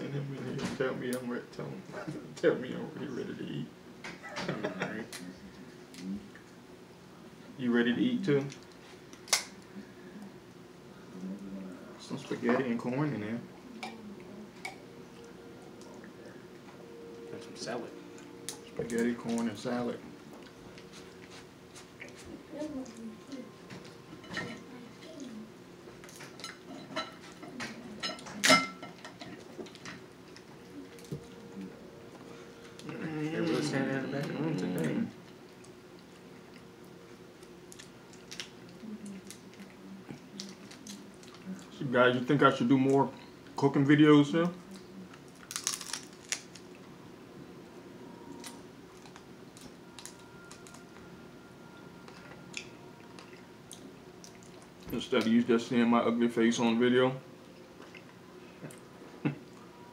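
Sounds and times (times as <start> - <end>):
crab shells cracking: 8.6 - 9.5, 37.7 - 39.4, 45.3 - 46.7
crab shells cracking and clicking: 45.3 - 46.7.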